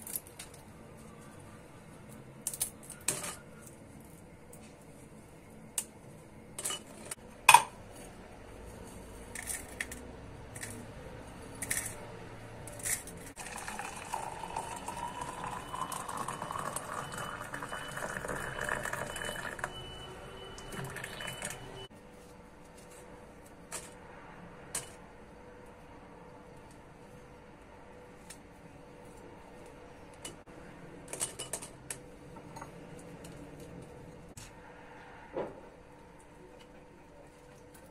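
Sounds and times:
water pouring into glass: 13.4 - 19.8, 20.6 - 21.9.

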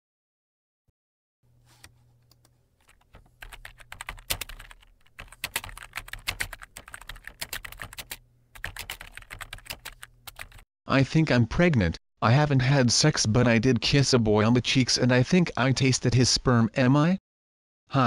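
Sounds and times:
fast typing on a keyboard: 2.3 - 10.6.

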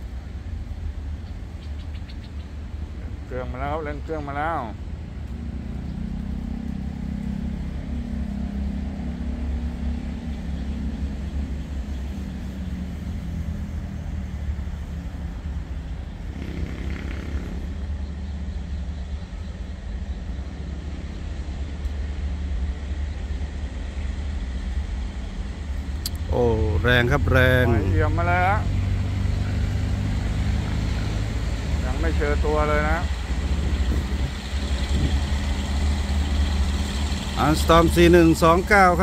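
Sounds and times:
locomotive diesel engine revving: 3.3 - 18.2, 25.9 - 39.0.

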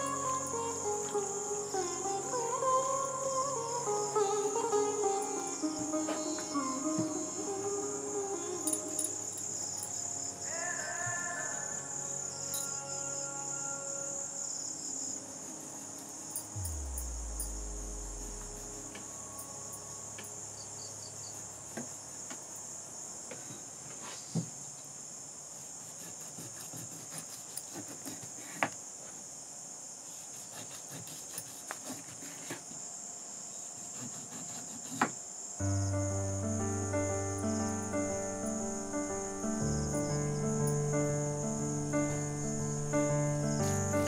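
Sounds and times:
background music: 0.0 - 22.9, 35.6 - 44.0
crickets chirring: 0.0 - 44.0.

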